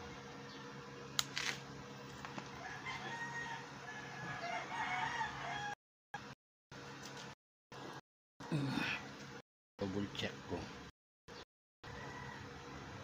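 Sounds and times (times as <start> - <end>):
rooster crowing: 2.6 - 5.8, 11.8 - 13.0.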